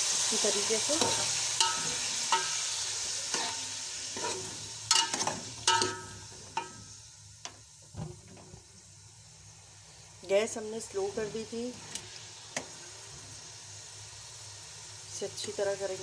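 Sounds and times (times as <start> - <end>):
chicken sizzling in hot oil: 0.0 - 16.0
metal spoon knocking on pot: 1.0 - 2.6, 4.9 - 6.8.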